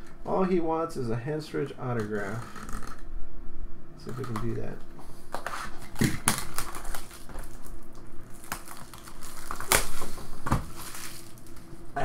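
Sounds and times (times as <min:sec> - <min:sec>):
plastic wrap crackling: 0:05.7 - 0:11.8.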